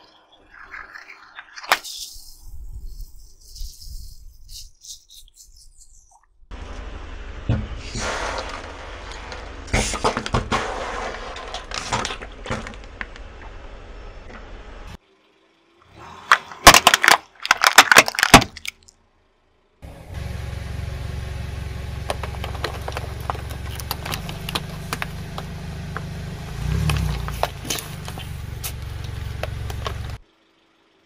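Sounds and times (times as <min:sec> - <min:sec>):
car engine running: 0:06.5 - 0:15.8, 0:19.0 - 0:31.0
plastic toys cracking under tyre: 0:16.3 - 0:19.0, 0:22.1 - 0:25.4
plastic bottles crackling under wheel: 0:16.6 - 0:18.9, 0:22.1 - 0:25.5.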